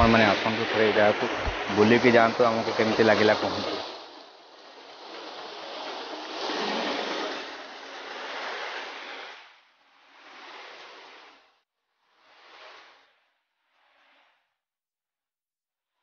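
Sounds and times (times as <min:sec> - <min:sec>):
stream rushing over rocks: 0:00.0 - 0:09.4.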